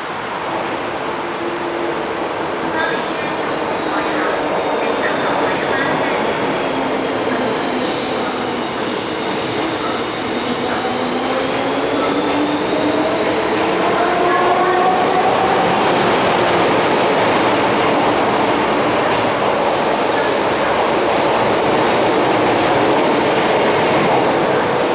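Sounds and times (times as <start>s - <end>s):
train wheels rushing on rail: 0.0s - 24.9s
train whine rising: 6.1s - 24.9s.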